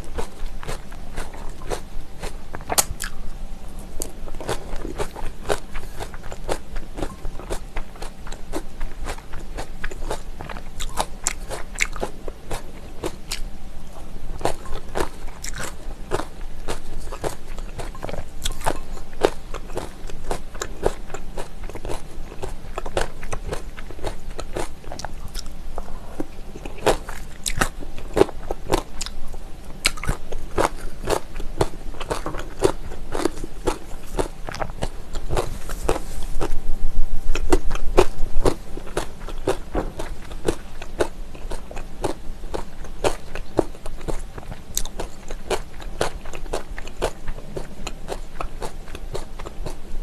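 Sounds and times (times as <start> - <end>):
wet chewing and mouth clicks: 4.0 - 13.5, 14.4 - 25.6, 26.2 - 29.2, 29.8 - 36.6, 37.3 - 49.9.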